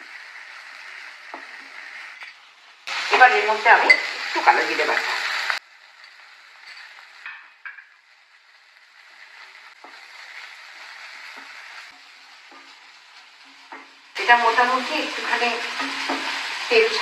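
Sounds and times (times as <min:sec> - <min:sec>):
paste frying in oil: 0:00.0 - 0:17.0
spatula stirring and scraping: 0:08.8 - 0:14.7.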